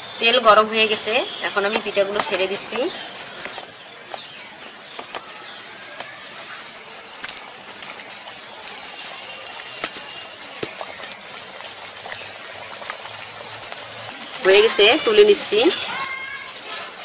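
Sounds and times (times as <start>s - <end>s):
deep-frying sizzle: 0.0s - 17.0s
sharp oil crackles: 0.0s - 17.0s.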